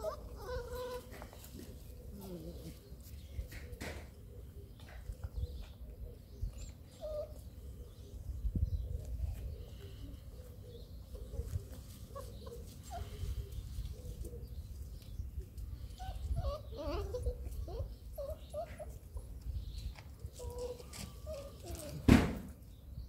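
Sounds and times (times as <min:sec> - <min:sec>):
puppies squeaking and whimpering: 0:00.0 - 0:02.8, 0:06.5 - 0:08.1, 0:11.1 - 0:15.2, 0:15.8 - 0:22.1.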